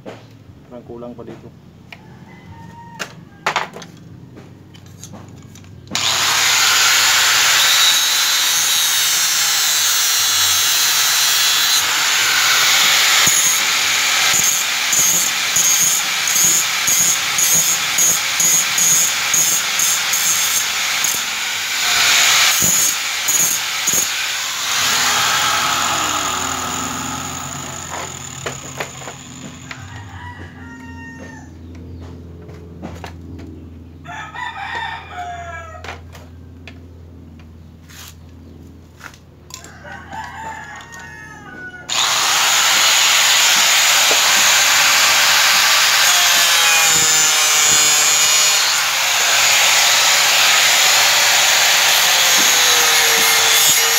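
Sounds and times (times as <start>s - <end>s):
rooster crowing: 1.9s - 4.8s, 24.9s - 27.9s, 29.4s - 31.6s, 34.0s - 36.1s, 39.5s - 41.9s
angle grinder cutting: 5.9s - 29.8s, 41.9s - 53.9s.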